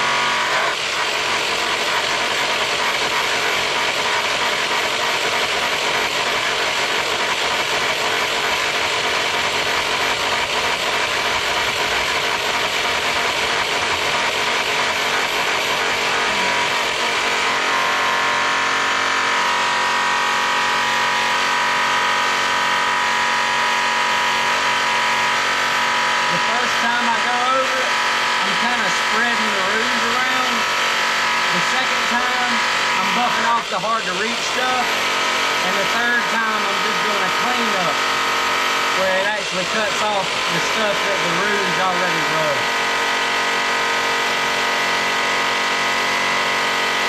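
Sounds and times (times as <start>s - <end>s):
polisher motor whine: 0.0s - 47.0s.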